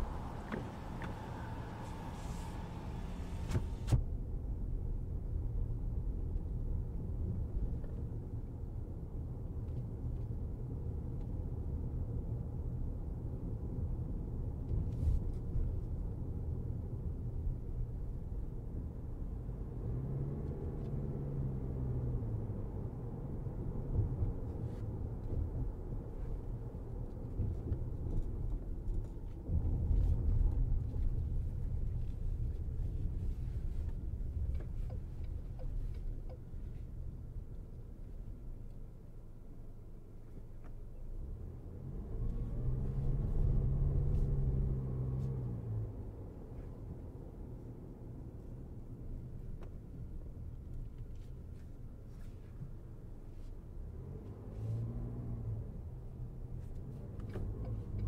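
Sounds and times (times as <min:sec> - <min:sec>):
car engine rising and falling: 0:00.0 - 0:04.0, 0:40.6 - 0:46.8
tyre and road rumble: 0:00.0 - 0:04.0.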